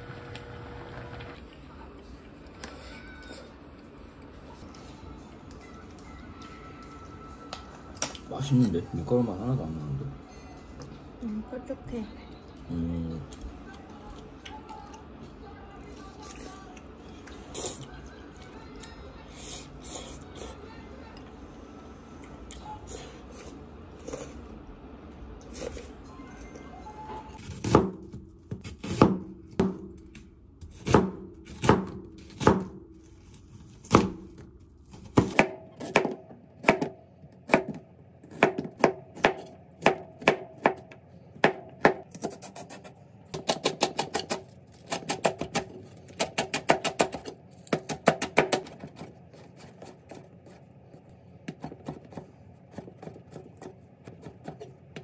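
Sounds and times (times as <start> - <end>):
soft background music: 4.6 - 9.6
knife chopping on cutting board: 35.0 - 50.6.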